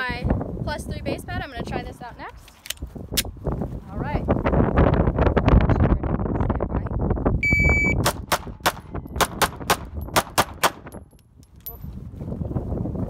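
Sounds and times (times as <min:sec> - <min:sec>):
shot timer beep: 0:07.4 - 0:08.1
pistol shots: 0:08.0 - 0:11.0.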